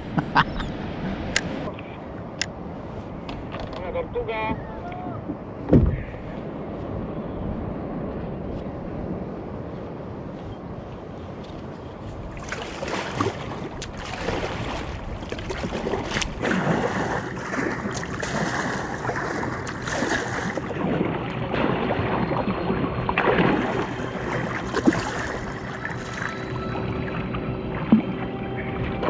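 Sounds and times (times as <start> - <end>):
wind on microphone: 0.0 - 29.0
sharp knocks: 5.7 - 6.1
water splashing against kayak: 12.2 - 29.0.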